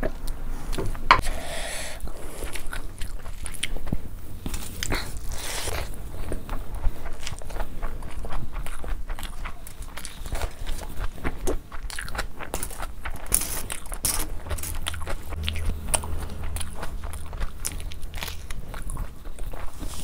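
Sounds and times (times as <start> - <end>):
chewing with wet smacks: 2.4 - 15.4.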